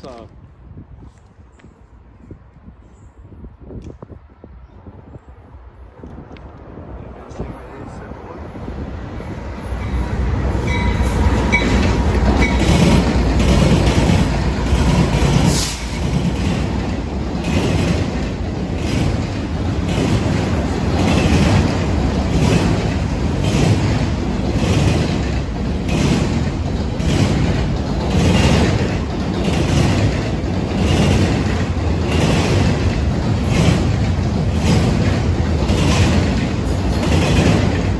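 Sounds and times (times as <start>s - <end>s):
freight train rumbling past: 3.3s - 37.9s
wheels clattering over rails: 9.8s - 37.9s.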